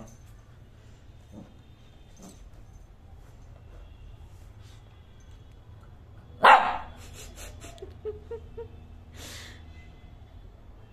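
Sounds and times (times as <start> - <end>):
puppy barking: 6.4 - 7.0.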